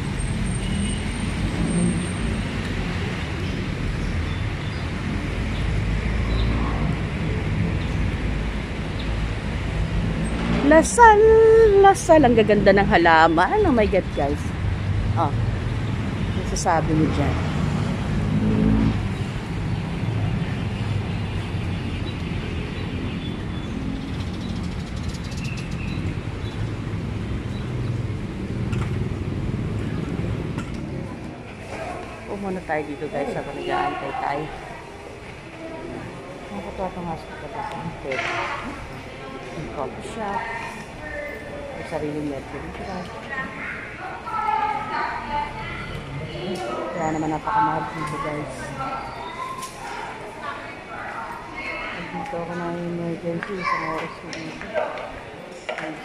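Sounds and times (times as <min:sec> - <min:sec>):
road traffic rumble: 0:00.0 - 0:56.0
faint voices: 0:30.2 - 0:56.0.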